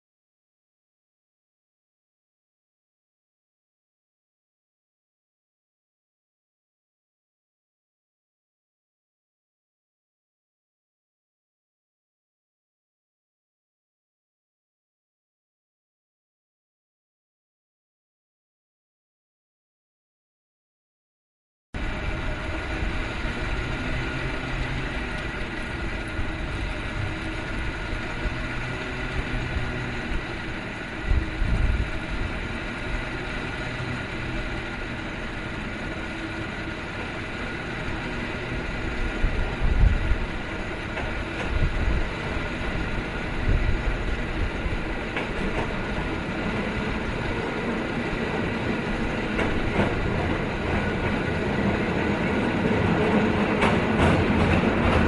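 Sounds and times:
cable car rumble and whine: 0:21.8 - 0:55.0.

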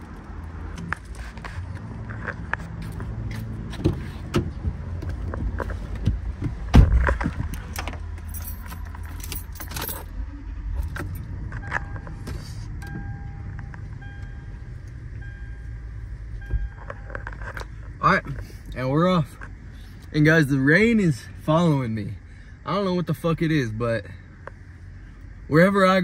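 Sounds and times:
loud thump: 0:06.7 - 0:07.4
keys jangling: 0:07.7 - 0:10.1
electronic warning chime beeping: 0:12.8 - 0:14.6.

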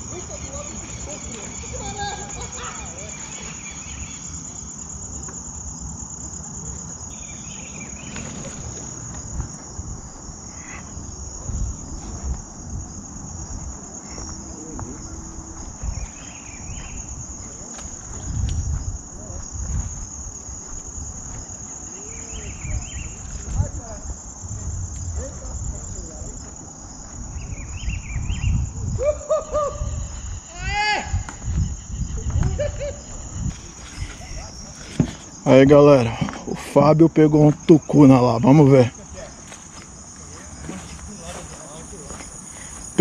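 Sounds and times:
insects trilling: 0:00.0 - 0:43.0
low rumbles: 0:07.0 - 0:29.1.

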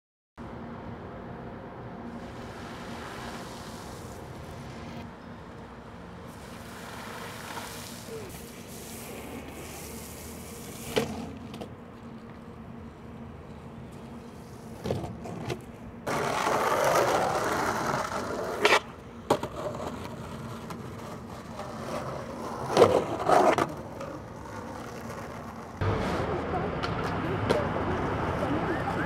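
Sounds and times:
skateboard wheels rolling on concrete: 0:01.6 - 0:29.0
skateboard clacks: 0:14.8 - 0:26.2.

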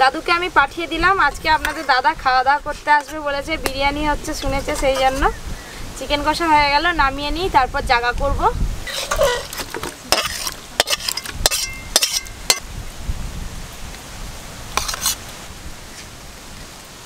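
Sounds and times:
metal spatula clinking on steel pan: 0:10.1 - 0:12.6.

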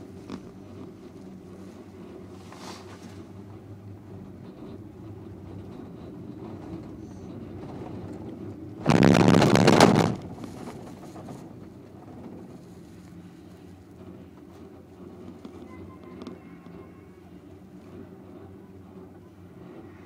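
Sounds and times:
gondola cabin running rumble: 0:00.0 - 0:20.0
rattling rumble over tower rollers: 0:00.0 - 0:20.0.

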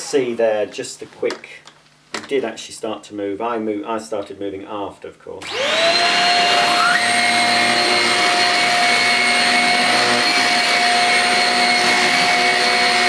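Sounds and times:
vacuum cleaner whine: 0:05.4 - 0:13.0.

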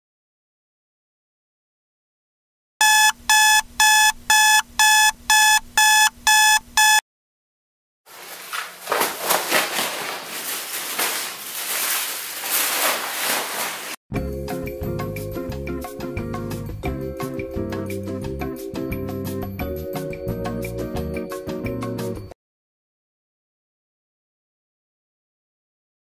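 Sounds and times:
electronic alarm clock beeping: 0:02.8 - 0:07.0
rustling noise: 0:08.1 - 0:14.0.

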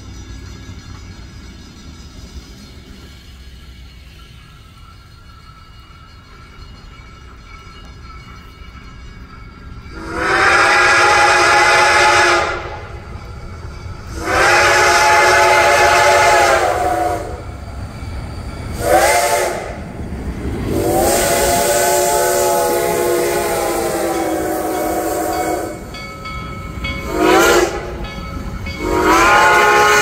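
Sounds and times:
steam locomotive rumbling past: 0:00.0 - 0:30.0
steam whistle blasts: 0:09.9 - 0:13.0, 0:14.1 - 0:17.5, 0:18.7 - 0:19.8, 0:20.7 - 0:25.9, 0:27.0 - 0:28.0, 0:28.8 - 0:30.0.

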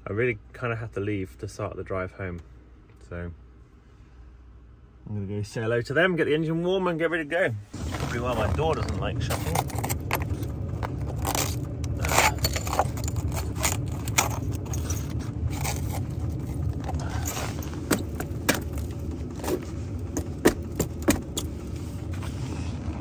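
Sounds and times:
steady low rumble: 0:07.3 - 0:23.0
ice cracking and scraping: 0:07.8 - 0:21.5.

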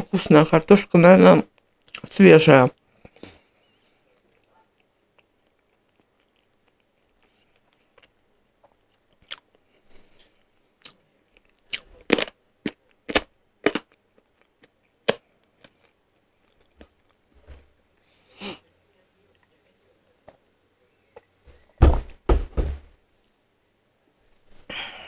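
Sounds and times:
person chewing with lip smacks: 0:01.6 - 0:02.1, 0:04.2 - 0:09.6, 0:10.8 - 0:17.2.

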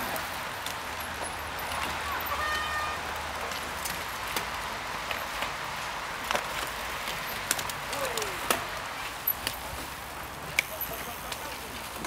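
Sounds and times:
bike clicks and rattles: 0:00.0 - 0:02.4, 0:03.2 - 0:12.0
bike tyres on dirt trail: 0:00.0 - 0:12.0.

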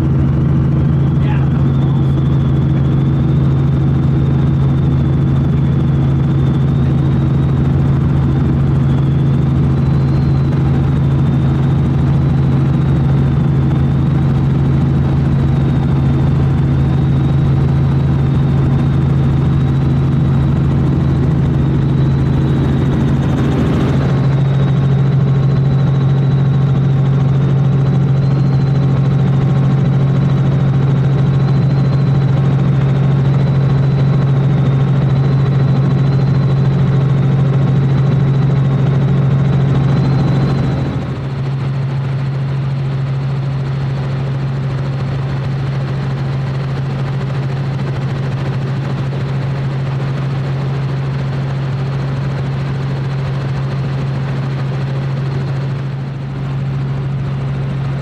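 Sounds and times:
helicopter engine and rotor drone: 0:00.0 - 0:58.0.

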